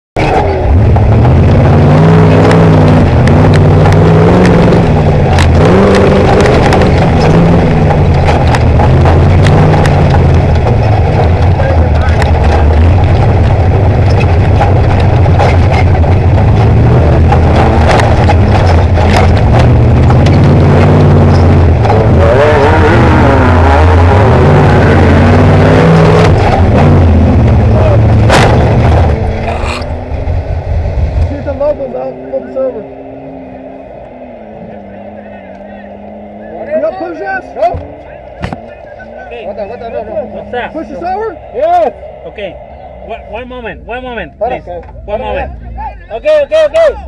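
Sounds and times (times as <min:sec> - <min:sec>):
race truck engine revving: 0:00.2 - 0:47.0
sharp knocks and rattles: 0:02.5 - 0:22.1.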